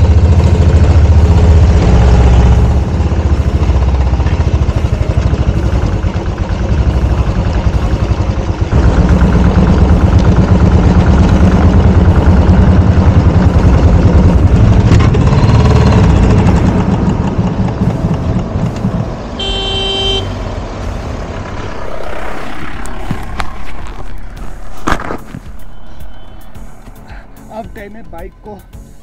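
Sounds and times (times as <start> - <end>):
vehicle engine rumbling: 0.0 - 29.0
vehicle horn: 19.4 - 20.4.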